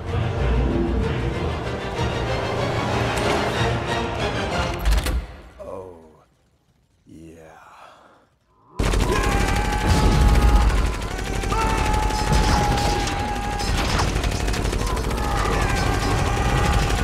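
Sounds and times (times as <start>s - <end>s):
rapid automatic gunfire: 8.8s - 17.0s.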